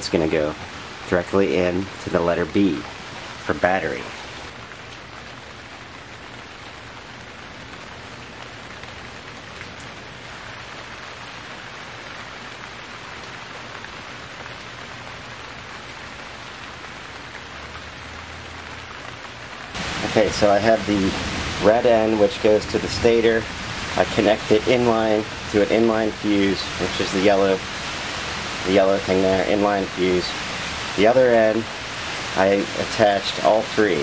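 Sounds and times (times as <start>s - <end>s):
steady hiss: 0.0s - 4.6s, 19.6s - 34.0s.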